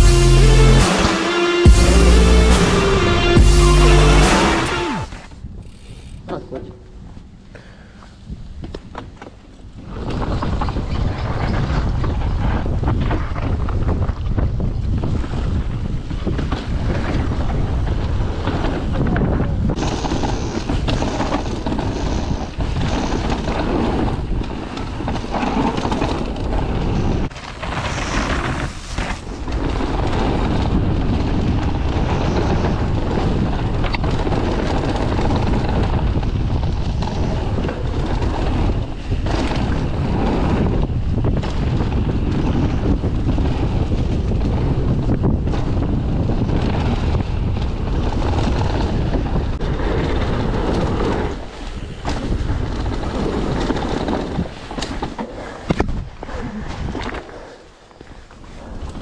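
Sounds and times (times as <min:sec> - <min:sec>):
wind buffeting microphone: 0:08.2 - 0:59.0
tyres rolling over dirt: 0:19.8 - 0:59.0.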